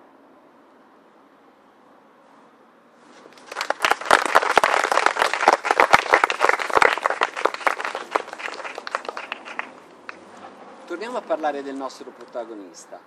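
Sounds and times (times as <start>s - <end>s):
audience applauding: 3.3s - 10.2s.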